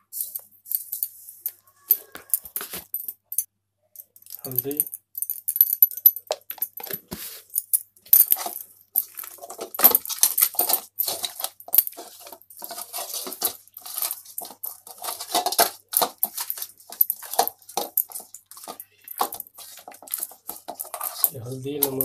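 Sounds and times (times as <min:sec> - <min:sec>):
hands rubbing fish: 0:11.1 - 0:21.3.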